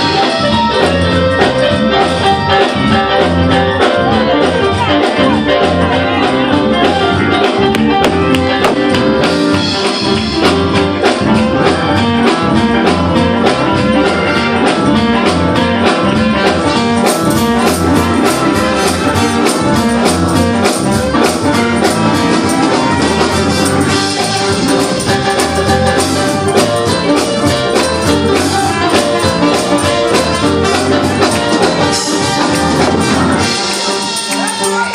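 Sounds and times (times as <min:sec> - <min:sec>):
drum kit fast beat: 0:00.0 - 0:34.9
keyboard: 0:00.0 - 0:34.9
trumpet: 0:13.1 - 0:34.9.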